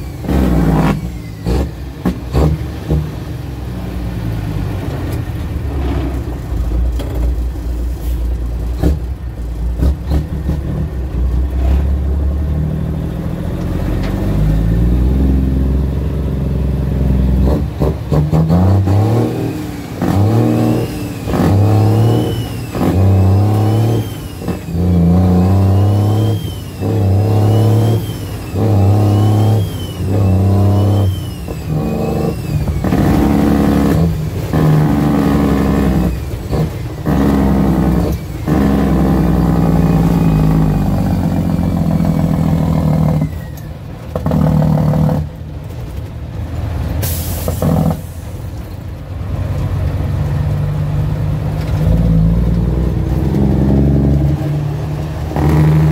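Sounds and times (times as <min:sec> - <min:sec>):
diesel truck engine from cab: 0:00.0 - 0:55.9
short sharp air hiss: 0:47.0 - 0:48.4.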